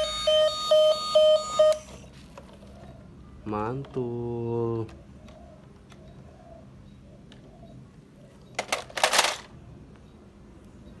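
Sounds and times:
plastic toys clattering: 0:08.5 - 0:09.6.

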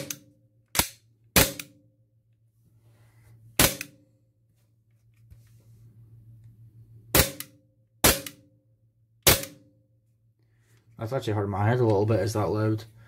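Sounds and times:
airsoft pistol shots: 0:00.8 - 0:01.8, 0:03.6 - 0:04.0, 0:07.1 - 0:08.4, 0:09.2 - 0:09.7.

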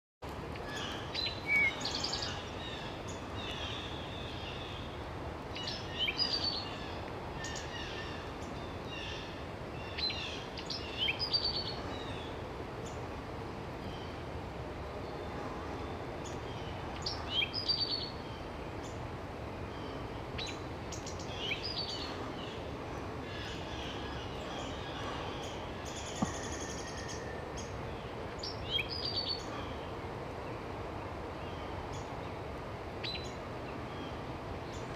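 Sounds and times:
steady background hiss: 0:00.2 - 0:34.9
bird song with fast trill: 0:23.4 - 0:29.6.

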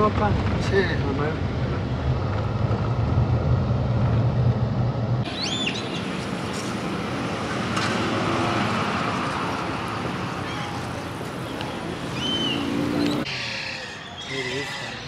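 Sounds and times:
street ambience: 0:00.0 - 0:15.0
bird chirp: 0:05.3 - 0:06.7, 0:10.4 - 0:15.0.

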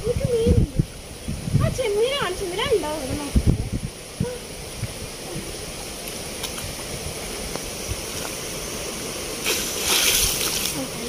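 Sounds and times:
stream water flowing: 0:00.0 - 0:11.0
water splash: 0:09.2 - 0:10.9
person wading through water: 0:09.4 - 0:10.9.

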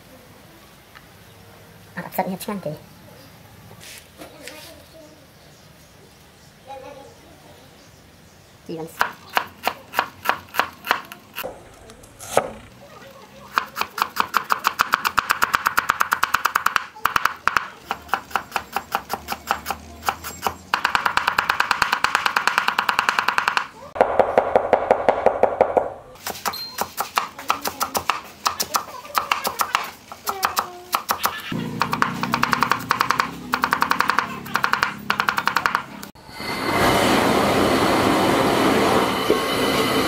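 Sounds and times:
cleaver chopping on wooden board: 0:13.6 - 0:23.7, 0:31.8 - 0:35.8.

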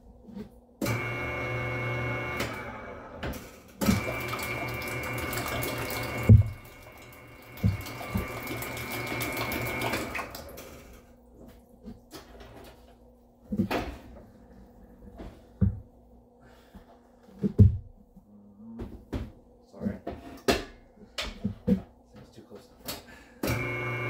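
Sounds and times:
kitchen tap running: 0:03.8 - 0:11.0.

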